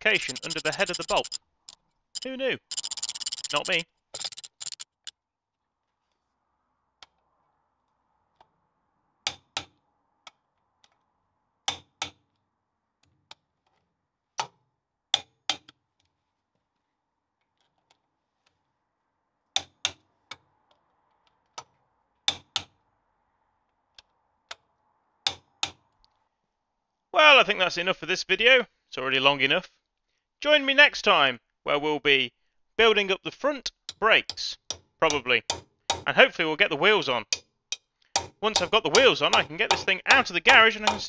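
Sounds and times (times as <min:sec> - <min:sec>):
ratchet clicks: 0:00.0 - 0:05.1.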